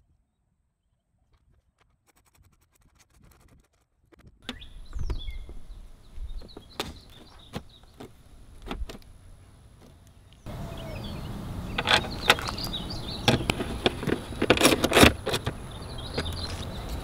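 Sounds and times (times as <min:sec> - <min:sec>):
birds chirping: 0:04.4 - 0:17.0.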